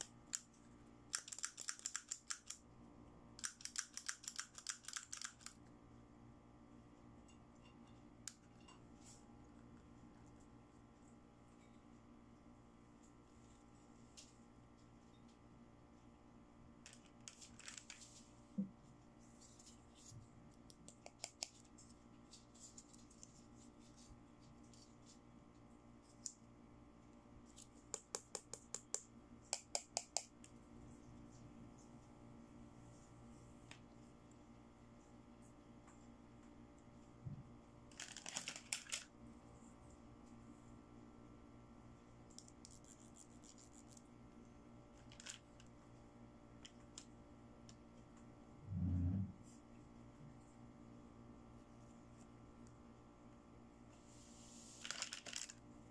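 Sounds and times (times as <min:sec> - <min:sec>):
low steady hum: 0:00.0 - 0:55.9
plastic toy clicks and taps: 0:01.1 - 0:02.6, 0:03.4 - 0:05.6, 0:27.9 - 0:30.3.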